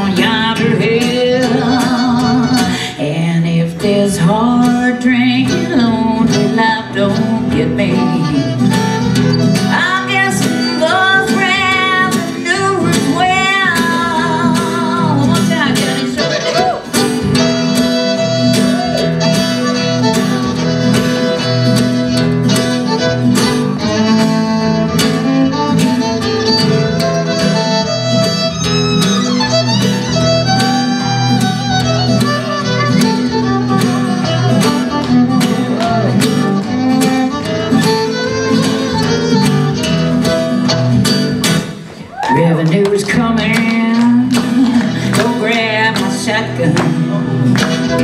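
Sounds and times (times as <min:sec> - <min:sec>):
strummed acoustic guitar: 0:00.0 - 0:48.0
fiddle solo: 0:00.1 - 0:03.0, 0:07.8 - 0:41.5, 0:47.5 - 0:48.0.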